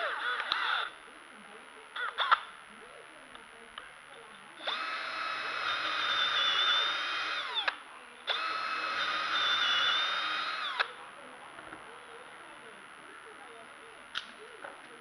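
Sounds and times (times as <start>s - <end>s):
drill motor whine winding down: 4.6s - 7.7s, 8.3s - 10.9s
cordless drill boring into wood: 4.6s - 10.9s.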